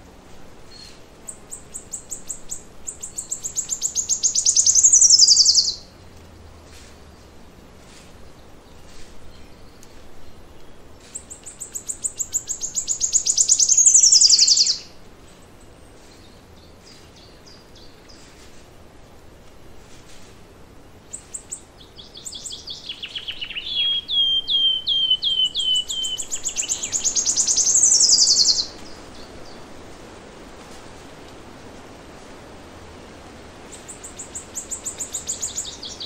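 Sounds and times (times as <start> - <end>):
faint bird chirps: 0.7 - 5.9, 8.7 - 15.0, 21.1 - 29.7
songbird singing rapid notes: 0.7 - 5.9, 8.4 - 15.0, 21.0 - 29.8, 33.7 - 36.0.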